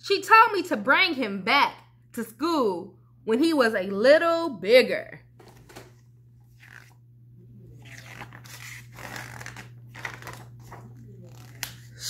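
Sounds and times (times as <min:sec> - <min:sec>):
steady low hum: 0:00.0 - 0:12.0
book pages rustling: 0:05.4 - 0:07.0, 0:07.8 - 0:11.9.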